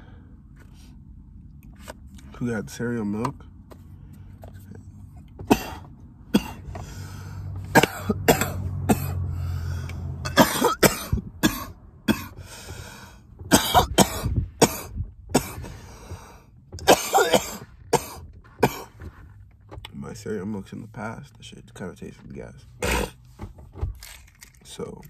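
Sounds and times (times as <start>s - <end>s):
man coughing: 5.4s - 6.7s, 7.7s - 9.3s, 10.3s - 12.4s, 13.5s - 15.7s, 16.8s - 19.0s, 22.8s - 23.2s.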